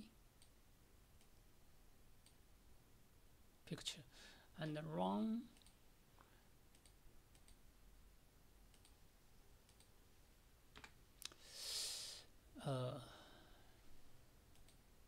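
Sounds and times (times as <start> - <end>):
computer mouse clicks: 2.2 - 2.4, 5.5 - 7.6, 8.7 - 9.0, 9.6 - 10.0, 14.5 - 14.8
breathy exhale: 11.4 - 12.3, 13.0 - 13.8.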